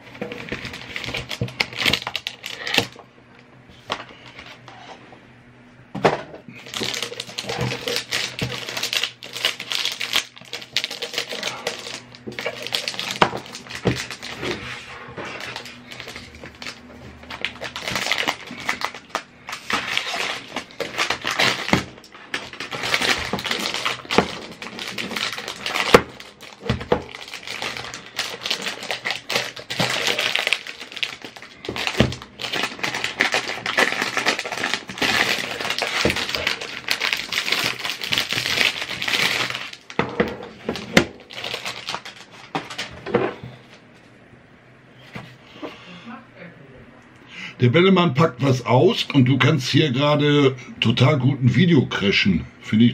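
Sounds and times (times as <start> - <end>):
plastic film crinkling: 0.0 - 3.0, 6.6 - 43.1.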